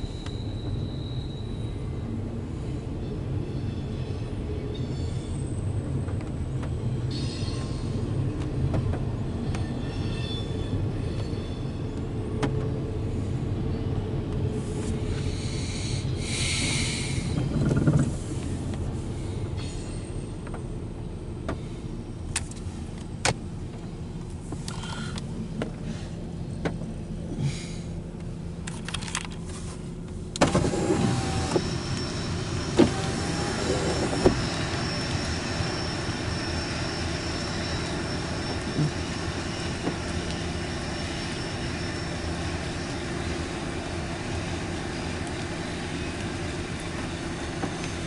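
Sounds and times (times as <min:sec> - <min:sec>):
low car interior hum: 0:00.0 - 0:48.0
car window lowering: 0:30.4 - 0:34.6
freight train rolling past: 0:31.2 - 0:48.0.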